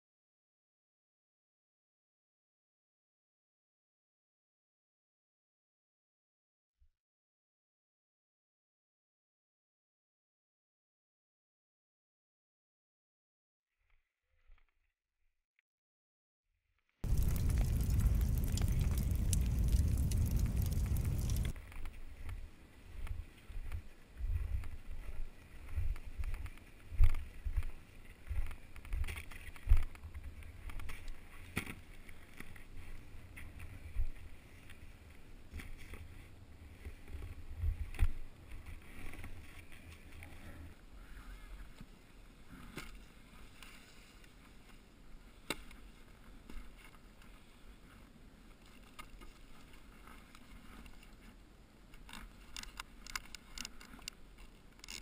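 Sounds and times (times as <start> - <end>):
wind buffeting microphone: 17.0 - 21.6.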